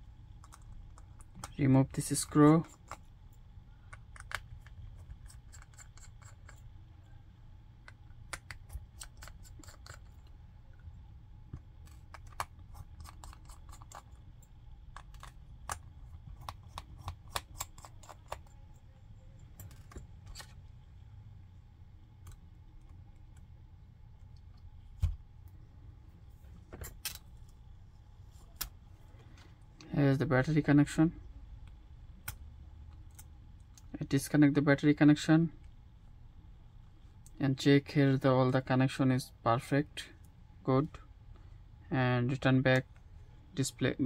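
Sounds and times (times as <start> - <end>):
low steady hum: 0.0 - 44.0.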